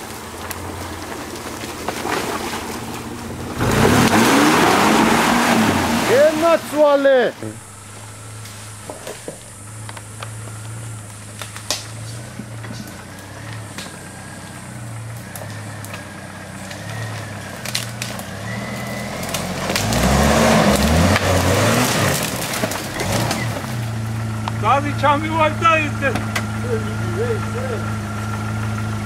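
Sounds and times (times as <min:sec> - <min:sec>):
sticks cracking under tyres: 0:00.0 - 0:05.0, 0:07.8 - 0:24.6
vehicle engine running low: 0:00.0 - 0:29.0.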